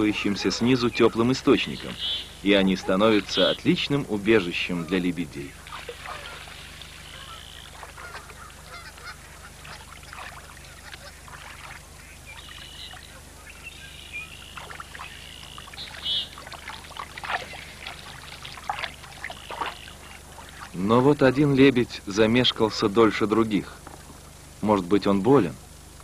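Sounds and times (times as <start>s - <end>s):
swans honking: 0.0s - 23.2s
light water splashing: 5.2s - 22.4s.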